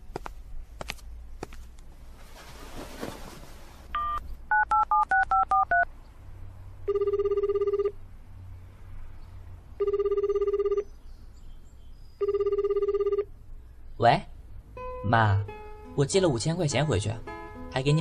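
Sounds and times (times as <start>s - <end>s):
keypad tones: 4.0s - 5.8s, 9.8s - 10.8s
telephone ringback tone: 6.9s - 8.0s, 9.8s - 10.9s, 12.2s - 13.3s.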